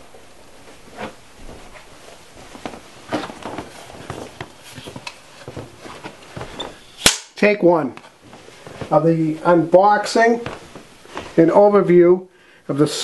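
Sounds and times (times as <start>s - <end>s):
footsteps: 0.0s - 7.0s, 7.7s - 11.7s.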